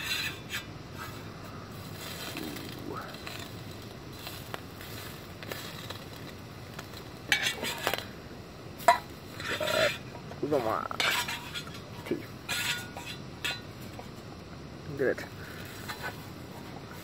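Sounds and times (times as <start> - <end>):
metal utensil scraping a frying pan: 0.0 - 3.6, 7.3 - 8.0, 8.8 - 13.9
bacon frying hiss: 0.0 - 14.8.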